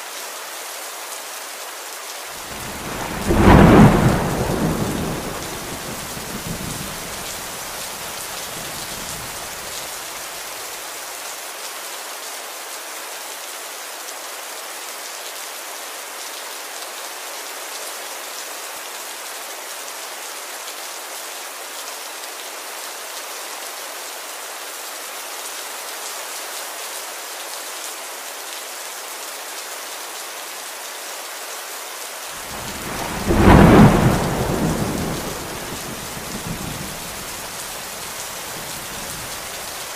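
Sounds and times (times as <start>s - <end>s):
rain hissing: 2.3s - 10.8s, 32.3s - 39.9s
thunder rumbling: 2.4s - 9.7s, 32.4s - 39.8s.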